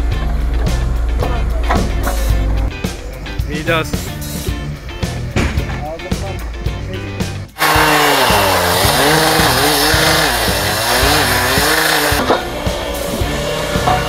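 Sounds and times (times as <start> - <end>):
background music with a beat: 0.0 - 14.0
saw grinding through steel: 7.6 - 14.0
two-stroke engine running hard: 7.6 - 14.0.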